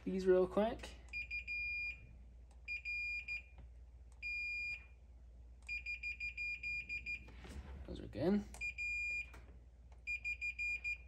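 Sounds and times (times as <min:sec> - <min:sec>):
multimeter beeps: 0:01.1 - 0:02.0, 0:02.6 - 0:03.6, 0:04.2 - 0:05.0, 0:05.6 - 0:07.3, 0:08.6 - 0:09.4, 0:10.0 - 0:11.0.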